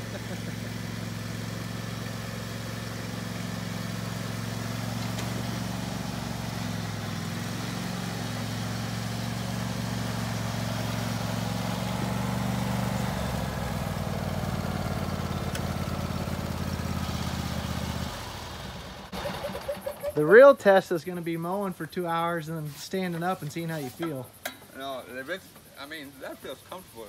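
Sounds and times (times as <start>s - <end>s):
lawn tractor engine running: 0.0s - 20.6s.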